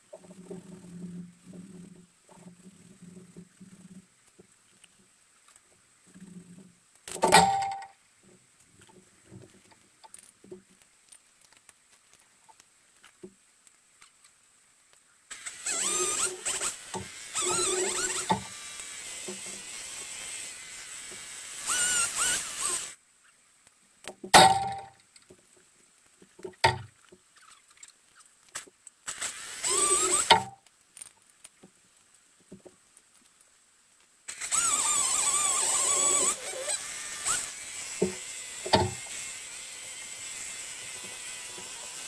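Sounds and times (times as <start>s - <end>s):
chainsaw cutting wood: 7.0s - 7.9s, 15.3s - 23.0s, 24.4s - 25.0s, 29.0s - 30.6s, 34.3s - 42.0s.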